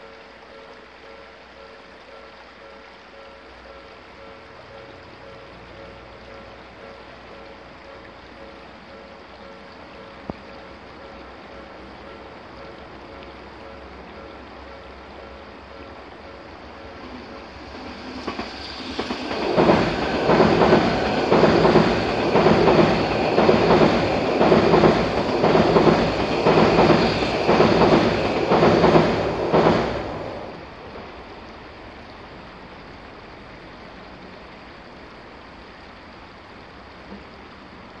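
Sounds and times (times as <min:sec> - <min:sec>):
electric train passing: 0:00.0 - 0:38.0
wheels clacking over rail joints: 0:16.1 - 0:31.3.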